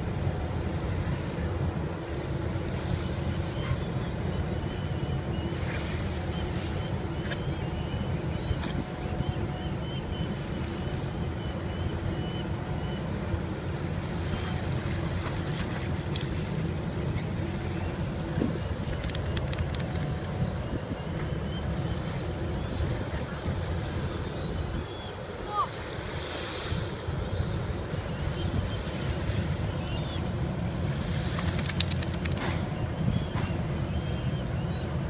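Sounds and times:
wind rumble on microphone: 0:13.5 - 0:35.0
faint clicks: 0:18.8 - 0:20.4, 0:31.4 - 0:32.6.

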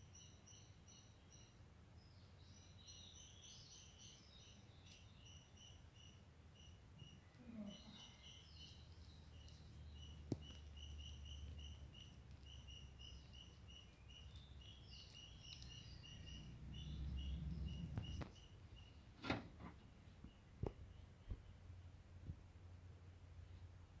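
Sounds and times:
high chirping: 0:02.6 - 0:19.1
low hum: 0:08.4 - 0:24.0.

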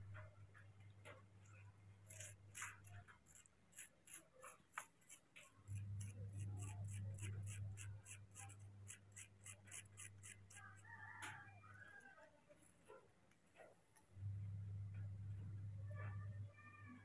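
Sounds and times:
low hum: 0:14.1 - 0:16.7.

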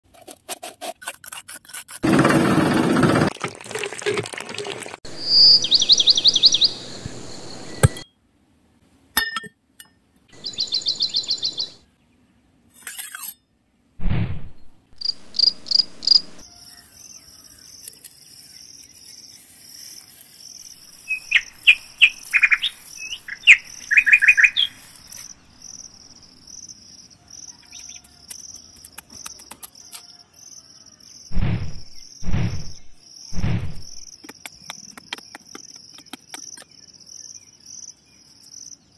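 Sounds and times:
small birds chirping: 0:05.1 - 0:08.0, 0:10.3 - 0:12.2, 0:15.0 - 0:38.9
insects trilling: 0:15.0 - 0:31.4
low thuds: 0:31.3 - 0:34.1.

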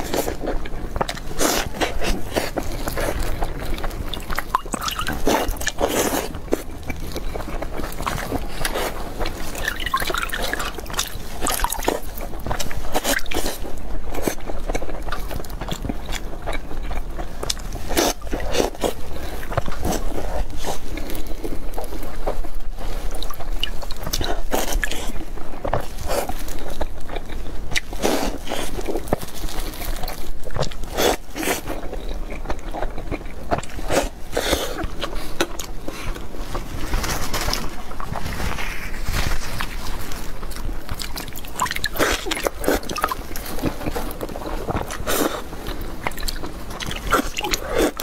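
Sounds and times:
wet chewing: 0:00.0 - 0:48.0
milk dripping: 0:09.2 - 0:12.0.

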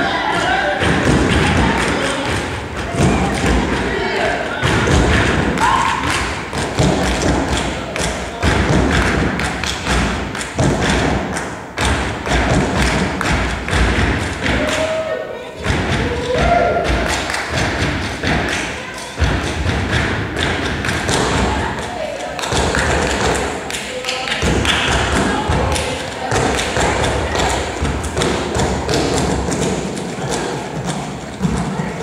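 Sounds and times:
performers shouting calls: 0:05.5 - 0:06.2.

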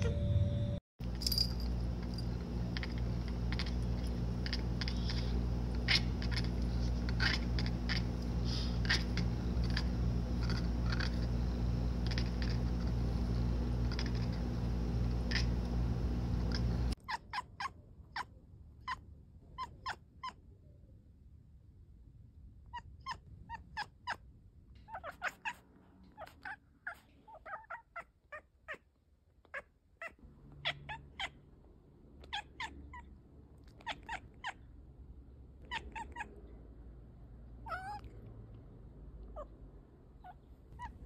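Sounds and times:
steady low hum: 0:00.0 - 0:17.0
cat chattering: 0:02.4 - 0:15.7, 0:16.4 - 0:20.5, 0:22.7 - 0:24.2, 0:24.8 - 0:31.4, 0:32.2 - 0:34.7, 0:35.6 - 0:36.6, 0:37.6 - 0:38.3, 0:39.2 - 0:41.0.

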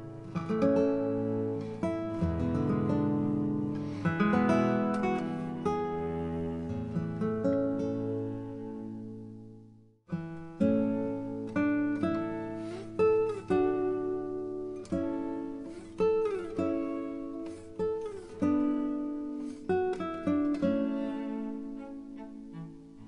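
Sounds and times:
plucked acoustic guitar: 0:00.0 - 0:23.0.

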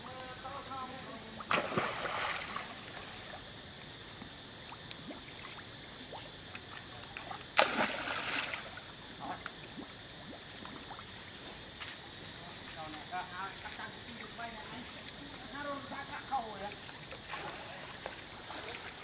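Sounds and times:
monkeys splashing in water: 0:01.5 - 0:03.1, 0:07.2 - 0:08.8.

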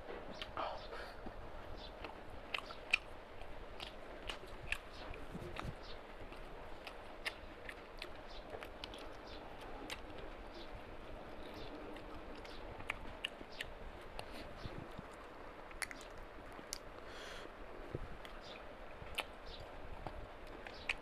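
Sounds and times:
person chewing: 0:02.0 - 0:10.2, 0:11.4 - 0:16.9.

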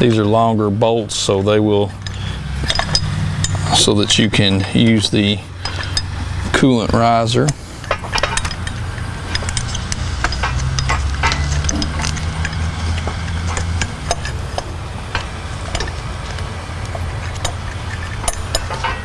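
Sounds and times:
steady low hum: 0:00.0 - 0:19.0
light metallic clicks and taps: 0:07.5 - 0:19.0.

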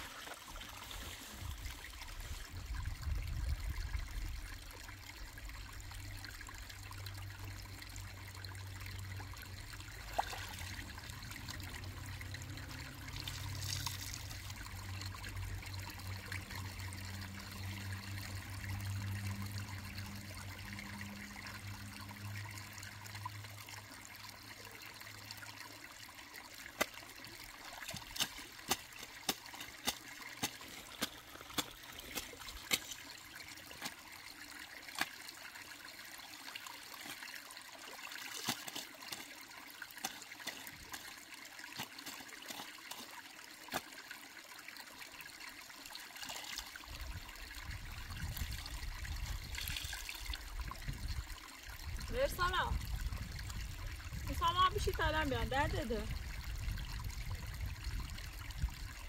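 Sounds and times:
water trickling: 0:00.0 - 0:59.0.

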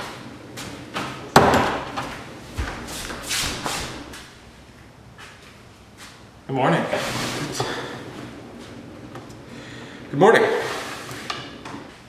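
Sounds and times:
footsteps on hard floor: 0:02.0 - 0:04.3.

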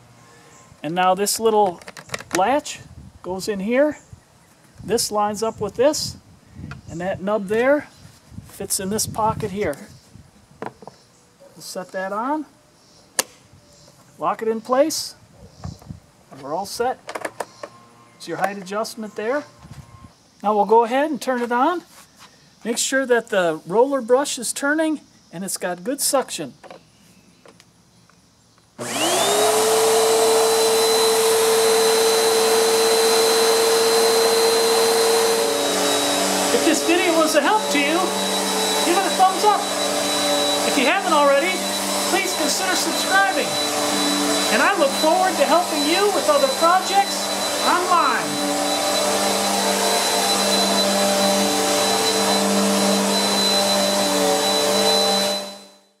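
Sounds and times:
vacuum cleaner running with whine: 0:28.8 - 0:56.0.

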